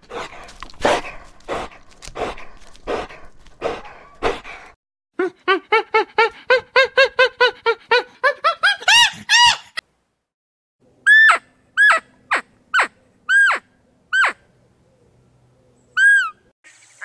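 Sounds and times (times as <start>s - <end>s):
dog breathy huffs: 0.0s - 4.8s
monkeys high calls: 11.0s - 14.5s, 16.0s - 16.5s.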